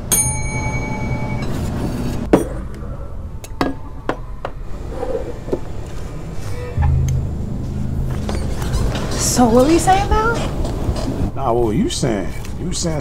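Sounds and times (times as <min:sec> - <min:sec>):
service bell ringing: 0:00.1 - 0:01.5.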